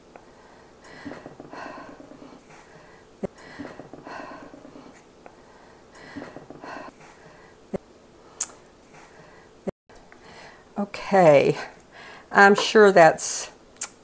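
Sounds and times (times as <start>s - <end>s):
slow breathing: 0.2s - 7.6s.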